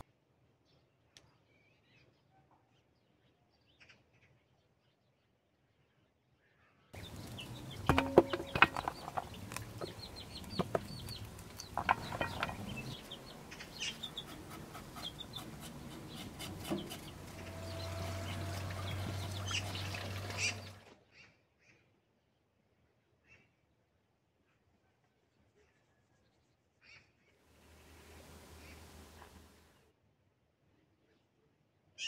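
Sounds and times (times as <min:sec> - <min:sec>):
sharp clicks and scratches: 0:07.0 - 0:18.4
chickens clucking: 0:07.0 - 0:20.8.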